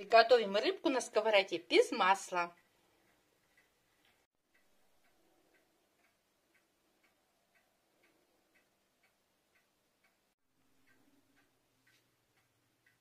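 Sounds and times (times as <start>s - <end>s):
clock ticking: 0.0s - 13.0s.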